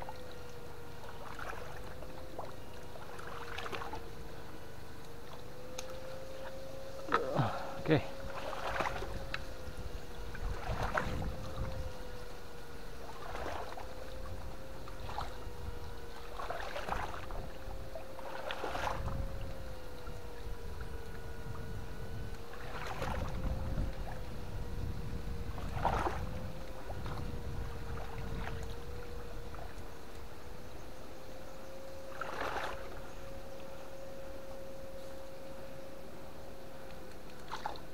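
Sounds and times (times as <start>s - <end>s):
fish-shocker whine: 0.0s - 37.9s
splashes in water: 1.0s - 4.0s, 8.2s - 9.3s, 10.4s - 11.7s, 13.0s - 14.3s, 16.2s - 17.4s, 22.5s - 23.4s, 32.1s - 33.0s.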